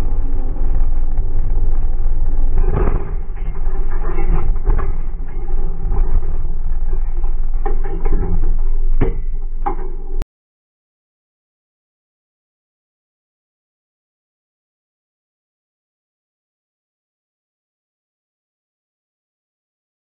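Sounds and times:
racing car engine rumble: 0.0s - 10.2s
rattles and sharp knocks: 0.0s - 10.2s.

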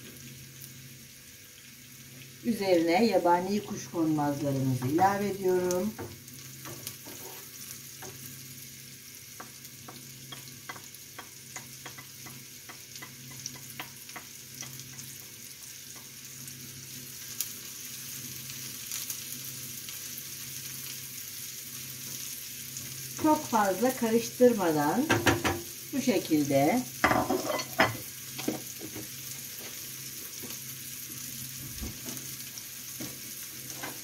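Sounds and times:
vegetables sizzling in a frying pan: 0.0s - 34.0s
wooden spatula tapping and scraping: 9.4s - 15.2s.

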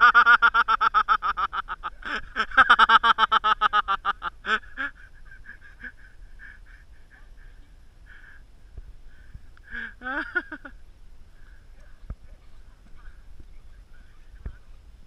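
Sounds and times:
person laughing hard: 0.0s - 7.6s, 9.7s - 10.8s.

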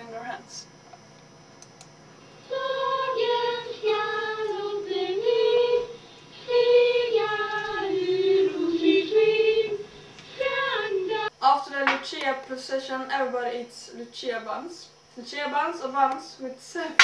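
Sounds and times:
girls singing together: 2.4s - 11.3s.

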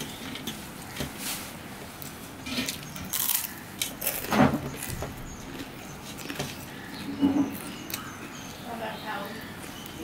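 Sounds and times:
chewing: 2.0s - 8.2s.

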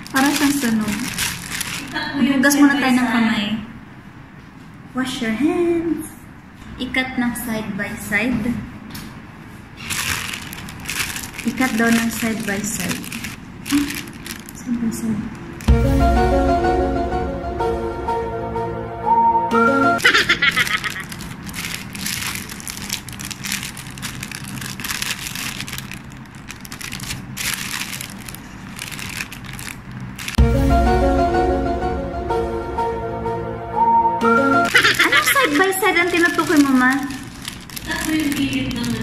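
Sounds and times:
woman speaking: 0.0s - 1.2s, 1.9s - 3.8s, 4.9s - 8.7s, 11.4s - 15.5s, 35.0s - 39.0s
plastic bag crinkling: 0.0s - 2.3s, 9.8s - 15.8s, 20.0s - 30.4s, 34.7s - 39.0s.

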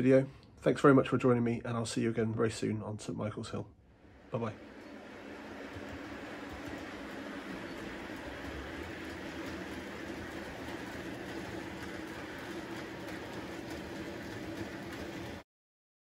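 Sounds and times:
model train rumbling on track: 4.0s - 15.4s
wheel clicks: 4.6s - 15.4s.

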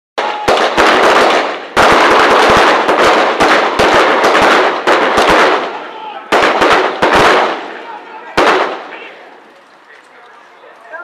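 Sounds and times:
rapid small-arms fire: 0.2s - 7.7s, 8.4s - 8.9s.

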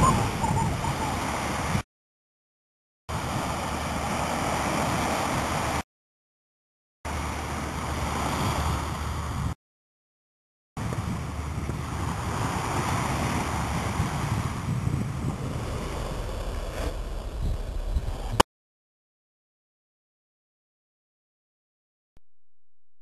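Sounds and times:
surf rushing: 0.0s - 1.8s, 3.1s - 5.8s, 7.1s - 9.6s, 10.8s - 18.4s
wind: 0.0s - 1.8s, 3.1s - 5.8s, 7.1s - 9.6s, 10.8s - 18.4s.

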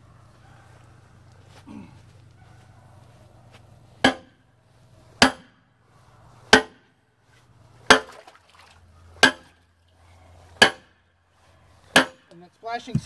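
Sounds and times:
sledgehammer striking steel bar: 4.0s - 4.4s, 5.2s - 5.6s, 6.5s - 6.9s, 7.9s - 8.1s, 9.2s - 9.6s, 10.6s - 11.0s, 11.9s - 12.3s.

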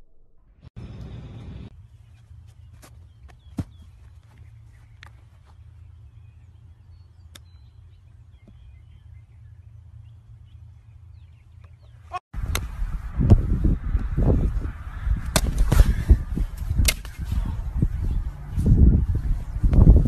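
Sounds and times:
small birds chirping: 0.8s - 12.8s, 13.8s - 20.0s
loud wind buffeting: 12.4s - 20.0s
wind rumble on microphone: 12.4s - 20.0s.

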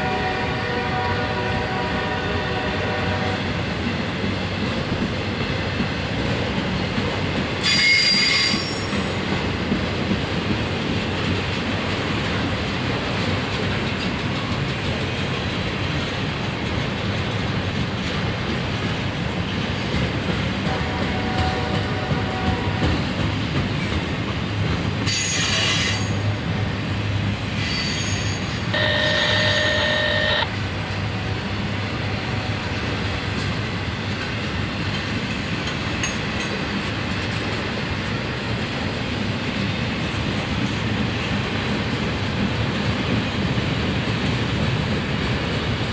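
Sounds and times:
train wheels rumbling on rail: 0.0s - 45.9s
high-pitched wheel squeals: 7.6s - 9.0s, 27.6s - 30.5s.

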